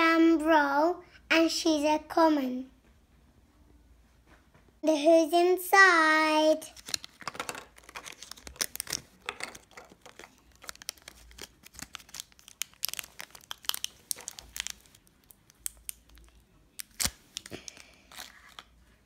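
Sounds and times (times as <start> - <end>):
plastic bag crinkling and tearing: 6.7 - 18.8.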